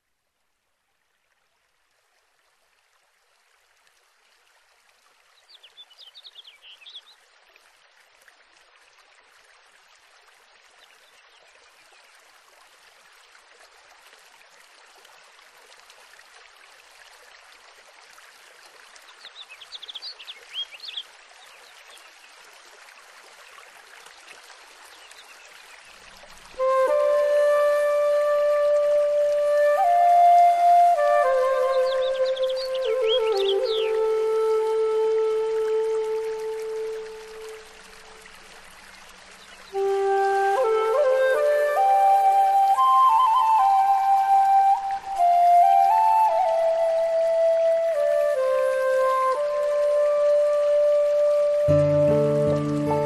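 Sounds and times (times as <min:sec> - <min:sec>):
stream water flowing: 0:00.0 - 0:53.0
birds chirping: 0:31.3 - 0:34.2.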